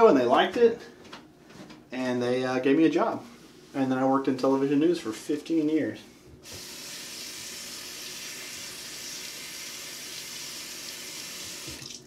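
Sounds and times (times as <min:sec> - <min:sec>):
tap water running into sink: 0:06.4 - 0:12.0.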